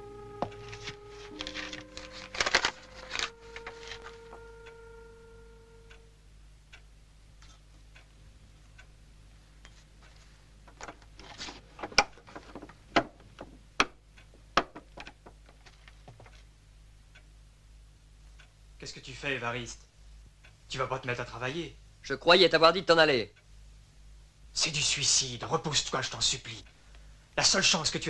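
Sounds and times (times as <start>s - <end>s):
held musical notes: 0.0s - 6.2s
sharp knocks and clicks: 11.8s - 16.4s.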